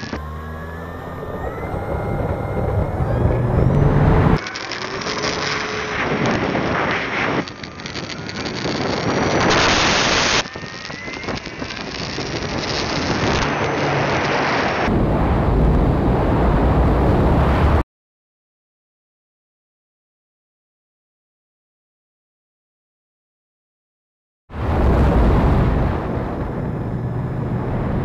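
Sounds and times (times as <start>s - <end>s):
model plane motor whine: 0.0s - 14.9s
wind rushing on microphone: 0.9s - 17.8s, 24.5s - 28.0s.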